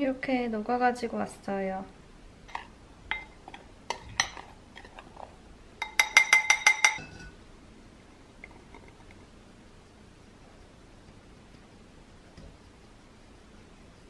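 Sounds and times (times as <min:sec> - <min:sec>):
spoon clinking glass bowl: 0:03.1 - 0:04.5, 0:05.8 - 0:07.4.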